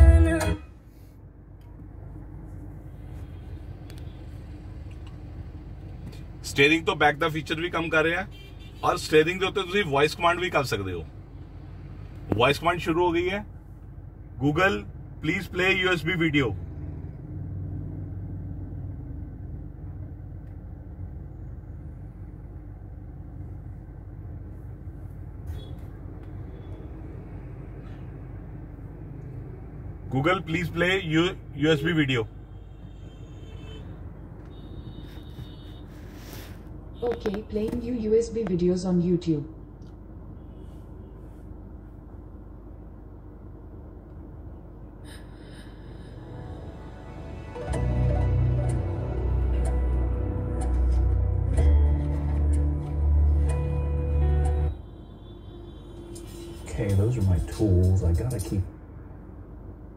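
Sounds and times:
car cabin hum: 0:12.0 - 0:16.4, 0:37.0 - 0:40.3
car engine idling: 0:42.1 - 0:54.7.

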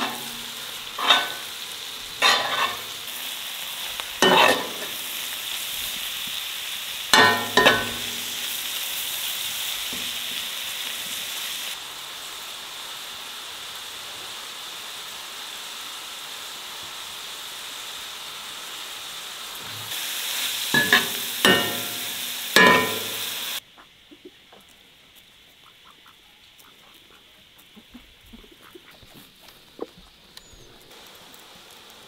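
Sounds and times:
metal ladle scraping a pan: 0:00.0 - 0:01.6, 0:02.2 - 0:03.0, 0:04.2 - 0:05.0, 0:20.8 - 0:23.3
onions sizzling in a pan: 0:00.0 - 0:23.6, 0:28.2 - 0:32.0
faint ticks: 0:23.8 - 0:32.0.

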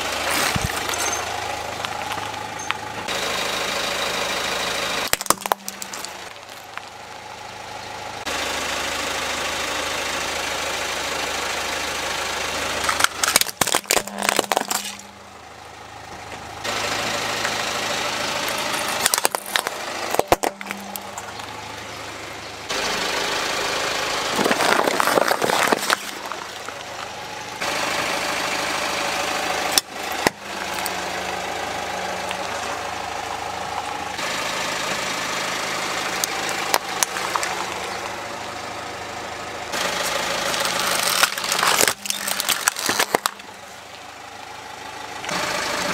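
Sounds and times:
plastic toys crunching under tyre: 0:00.0 - 0:03.1, 0:05.0 - 0:07.0, 0:12.6 - 0:15.2, 0:18.4 - 0:21.9, 0:24.2 - 0:27.8, 0:29.6 - 0:32.9, 0:35.7 - 0:38.4, 0:39.7 - 0:44.0
car engine idling: 0:00.0 - 0:45.9.

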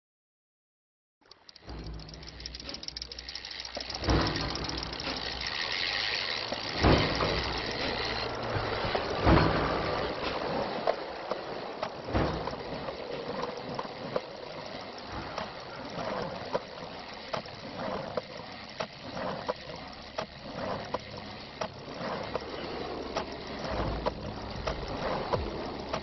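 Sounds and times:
mechanical clicks and ticks: 0:01.2 - 0:26.0
steady rushing noise: 0:01.5 - 0:26.0.

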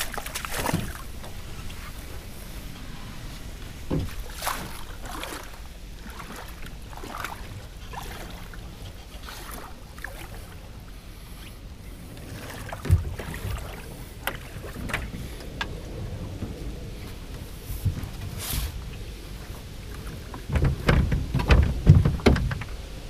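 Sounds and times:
water lapping against boat hull: 0:00.0 - 0:23.0
wind rumble on microphone: 0:00.0 - 0:23.0
light knocks on boat: 0:03.8 - 0:04.8.

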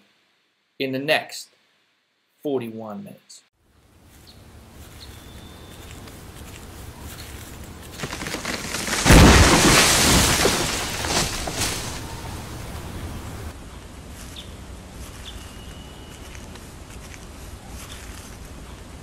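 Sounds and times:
branches snapping: 0:05.9 - 0:13.5
tree cracking: 0:07.2 - 0:13.5
tree crashing down: 0:07.3 - 0:13.5.

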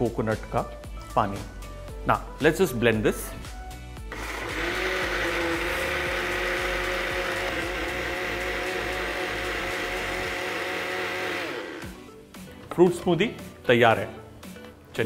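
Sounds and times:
blender motor whining: 0:04.1 - 0:12.0.

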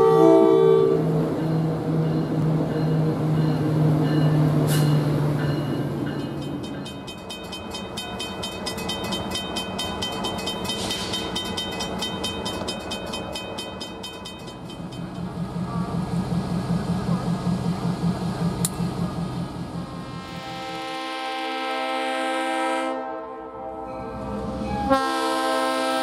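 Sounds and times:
railroad bell ringing: 0:00.0 - 0:16.0, 0:23.7 - 0:25.4
train approaching: 0:00.0 - 0:26.0.

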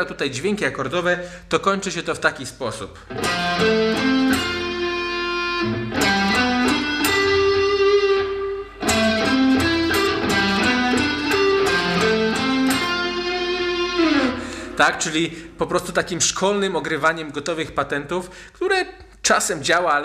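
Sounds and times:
electric guitar arpeggios: 0:03.1 - 0:16.2.

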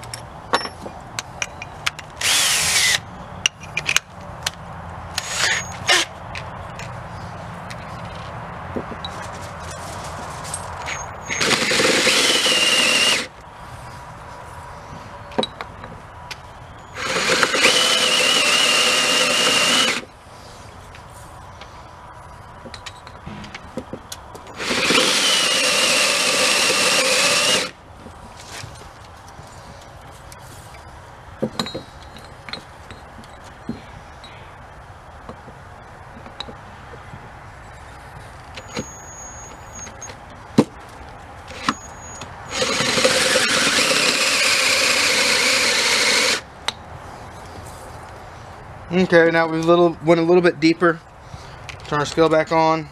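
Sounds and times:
drill whining into metal: 0:05.2 - 0:06.1, 0:10.9 - 0:13.3, 0:17.0 - 0:20.1, 0:24.5 - 0:27.7, 0:41.6 - 0:46.4.

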